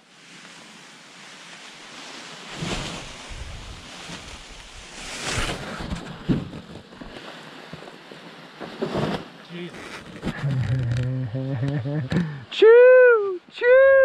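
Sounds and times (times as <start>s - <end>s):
wind gusting over microphone: 2.6s - 5.3s.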